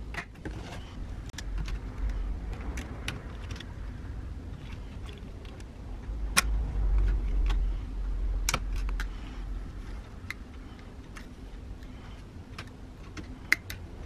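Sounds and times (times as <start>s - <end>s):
low handling rumble: 0.8s - 14.0s.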